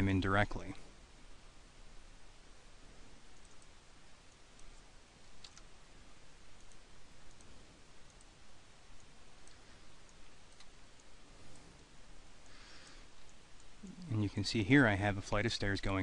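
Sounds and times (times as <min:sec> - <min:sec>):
background hiss: 0:00.0 - 0:16.0
mouse and keyboard clicks: 0:04.3 - 0:05.7.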